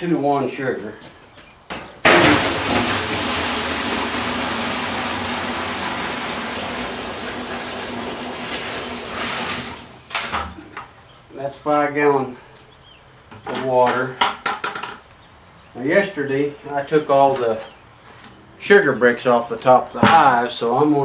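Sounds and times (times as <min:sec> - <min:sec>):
water pouring into barrel: 0:02.0 - 0:10.2.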